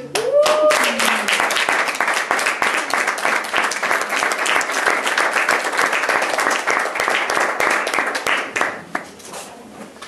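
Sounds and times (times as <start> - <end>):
audience applauding: 0.1 - 9.2.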